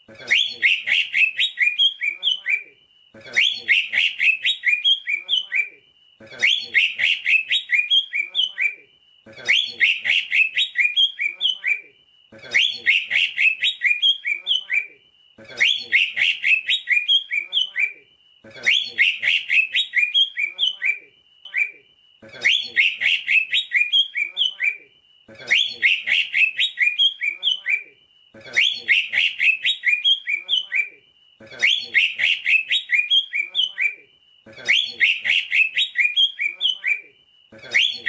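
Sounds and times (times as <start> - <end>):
bird singing whistled notes: 0.4 - 2.7, 3.4 - 5.8, 6.5 - 8.8, 9.5 - 11.9, 12.6 - 15.0, 15.6 - 18.0, 18.7 - 21.8, 22.5 - 24.8, 25.6 - 27.9, 28.6 - 31.0, 31.7 - 34.0, 34.7 - 37.1.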